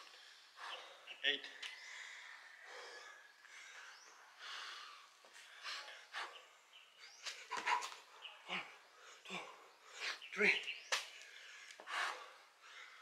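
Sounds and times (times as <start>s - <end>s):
person breathing hard: 1.8s - 6.5s, 11.3s - 13.0s.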